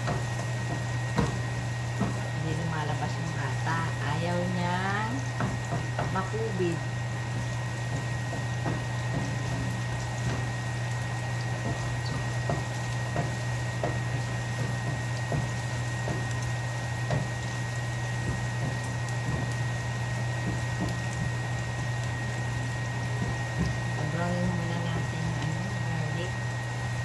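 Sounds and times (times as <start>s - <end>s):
soup bubbling in a pot: 0.0s - 2.4s, 4.9s - 24.0s.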